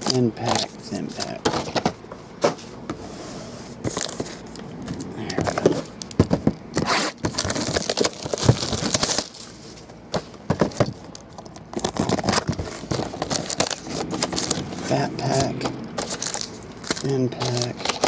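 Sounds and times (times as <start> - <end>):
packs scraping on table: 6.8 - 9.8, 11.8 - 18.0
foil wrappers crinkling: 6.8 - 10.0, 10.6 - 18.0.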